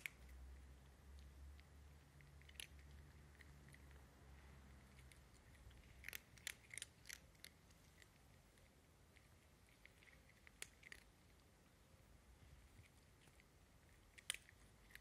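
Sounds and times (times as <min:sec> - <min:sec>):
cat crunching dry kibble: 0:05.0 - 0:08.2, 0:09.7 - 0:11.2.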